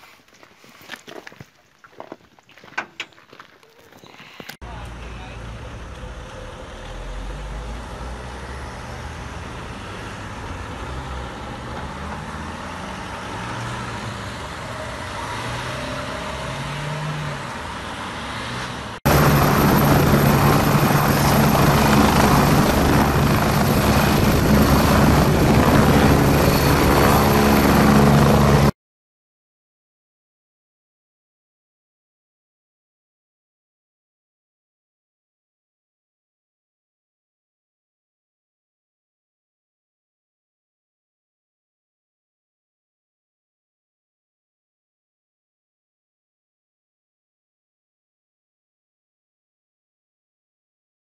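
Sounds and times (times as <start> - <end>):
car engines pulling away: 4.7 - 28.7
helicopter: 18.9 - 28.7.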